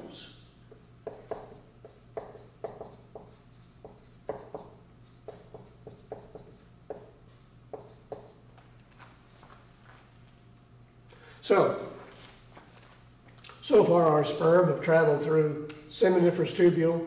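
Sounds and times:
marker writing on whiteboard: 0:00.7 - 0:08.7.

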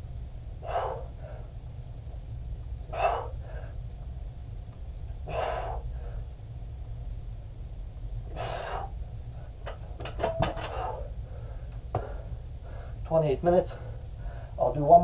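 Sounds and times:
steady low hum: 0:00.0 - 0:15.0
man exhaling hard: 0:05.2 - 0:06.0.

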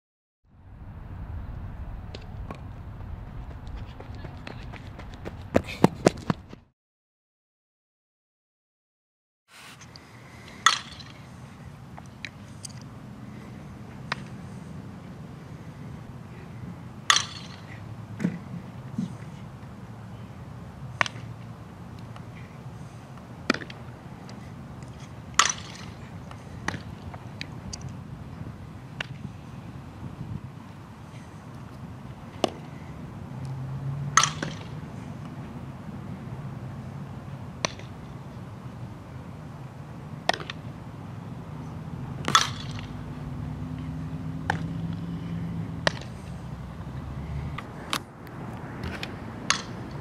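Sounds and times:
outdoor background noise: 0:00.5 - 0:06.7, 0:09.5 - 0:50.0
softballs being struck: 0:34.1 - 0:34.7, 0:37.6 - 0:38.0, 0:40.2 - 0:40.6, 0:42.2 - 0:43.0, 0:44.4 - 0:44.7, 0:45.8 - 0:46.2, 0:48.8 - 0:50.0.

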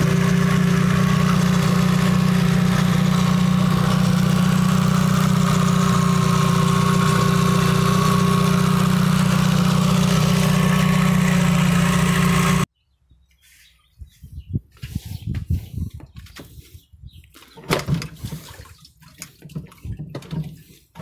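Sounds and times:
outboard motor idling: 0:00.0 - 0:12.7.

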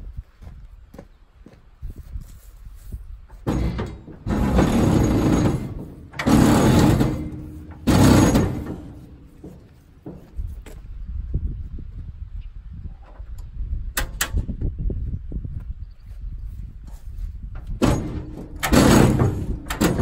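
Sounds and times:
rope rasping pulls: 0:03.4 - 0:09.7, 0:17.8 - 0:20.0.

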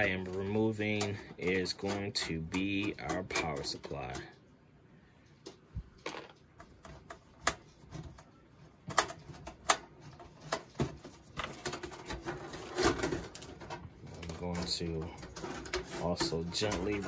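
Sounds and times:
cable rustling: 0:05.2 - 0:17.0.

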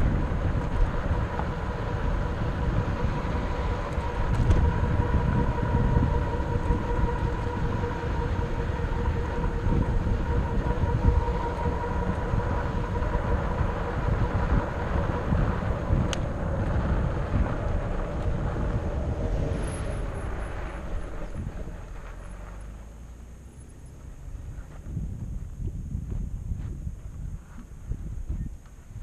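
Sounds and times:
steady whine: 0:00.0 - 0:29.0
wind rumbling on microphone: 0:00.0 - 0:29.0
tyre noise on dirt: 0:14.4 - 0:29.0.

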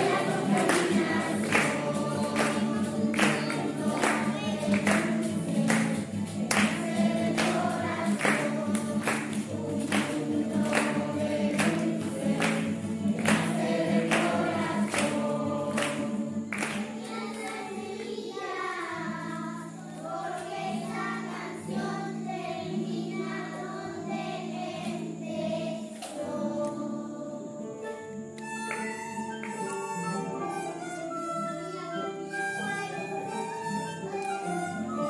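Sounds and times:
children singing together: 0:00.0 - 0:28.1, 0:30.2 - 0:35.0
guitar accompaniment: 0:00.0 - 0:35.0.

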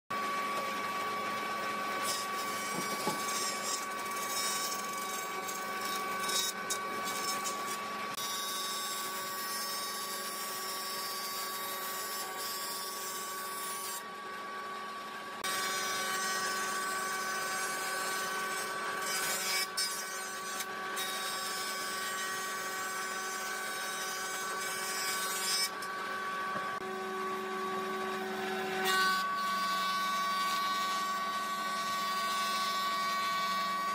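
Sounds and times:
jointer-planer whining: 0:00.1 - 0:33.9.

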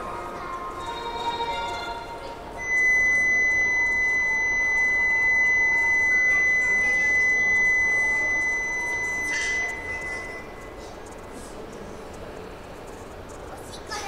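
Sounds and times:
high-pitched warning buzzer: 0:02.6 - 0:10.8.

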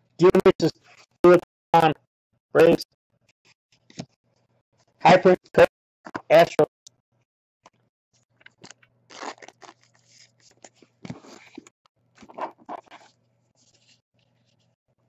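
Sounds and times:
plastic wrapper crinkling: 0:08.4 - 0:10.8.

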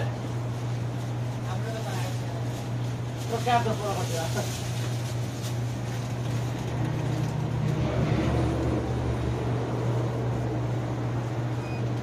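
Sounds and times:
engine running steadily: 0:04.0 - 0:12.0.

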